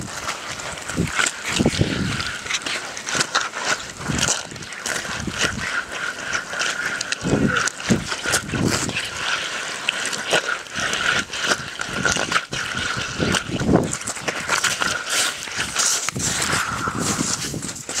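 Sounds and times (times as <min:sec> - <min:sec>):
footsteps crunching on ice: 0:00.0 - 0:18.0
low rumbles on microphone: 0:16.1 - 0:17.9.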